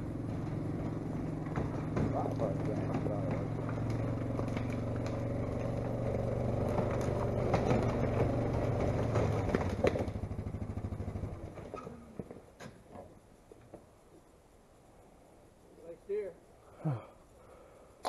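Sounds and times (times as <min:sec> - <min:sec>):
vehicle engine humming: 0:00.0 - 0:13.5.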